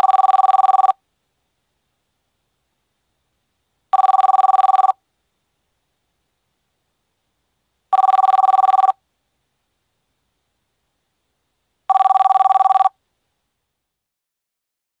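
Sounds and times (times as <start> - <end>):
telephone ringing: 0.0 - 1.0, 3.9 - 5.0, 7.9 - 9.0, 11.9 - 13.0.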